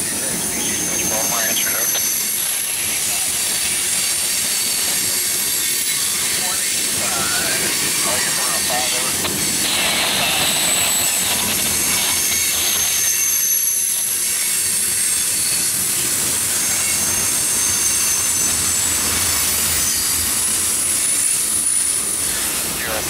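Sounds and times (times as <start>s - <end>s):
steel wheels rumbling on rail: 0.0s - 23.0s
high-pitched wheel squeal: 9.5s - 15.8s, 16.4s - 22.4s.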